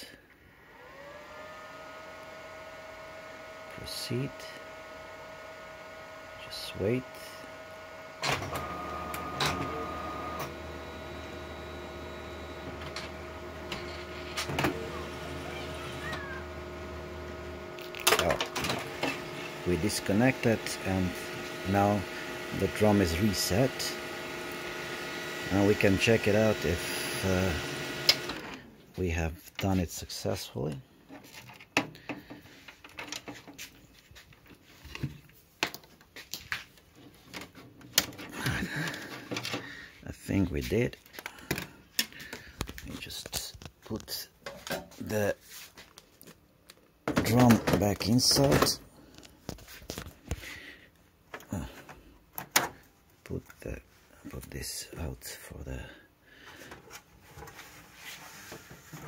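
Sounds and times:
printer motor hum: 0:00.5 - 0:28.9
printer mechanical clicks: 0:27.6 - 0:28.6.

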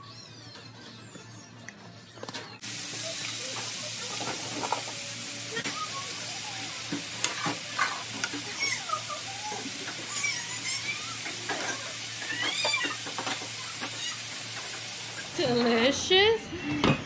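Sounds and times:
beef sizzling in frying pan: 0:02.6 - 0:16.1.

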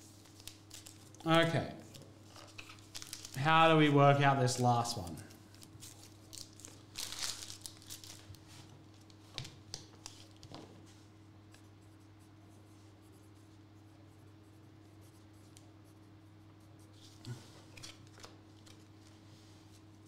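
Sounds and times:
paper and card rustling: 0:00.0 - 0:11.0
low electrical hum: 0:00.0 - 0:20.0.

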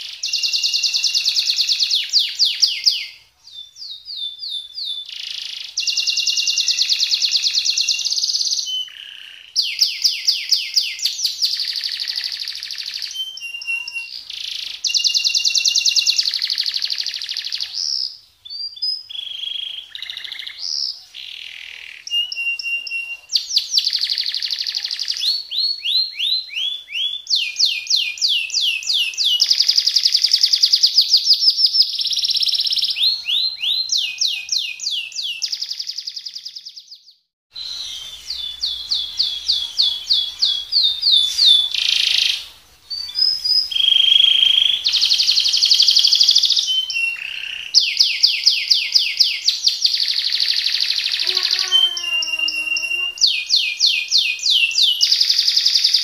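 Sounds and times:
canary singing: 0:00.0 - 0:56.0.

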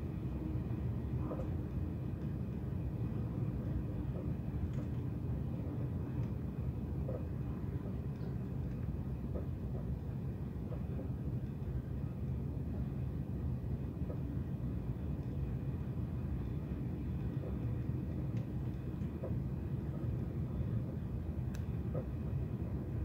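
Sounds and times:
train running rumble: 0:00.0 - 0:23.0
faint light clicks: 0:21.4 - 0:22.1.

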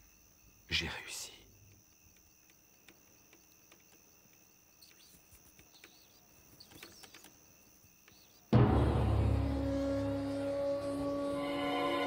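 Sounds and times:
insect trill: 0:00.0 - 0:12.0
small clicks and chirps: 0:01.6 - 0:08.5
scary music burst: 0:08.6 - 0:12.0.

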